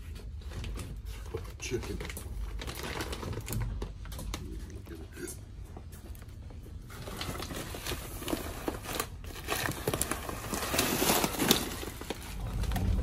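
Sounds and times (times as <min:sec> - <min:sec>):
plastic bags crinkling: 0:00.1 - 0:04.7, 0:06.8 - 0:13.0.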